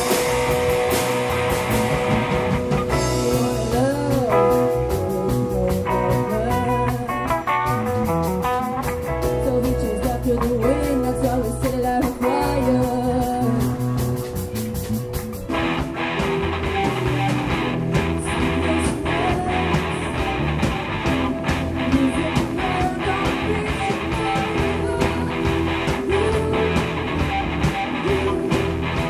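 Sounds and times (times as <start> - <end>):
drum kit: 0.0 - 29.0
electric guitar: 0.0 - 29.0
women singing: 3.0 - 7.3, 9.2 - 14.2, 18.2 - 20.2, 21.8 - 29.0.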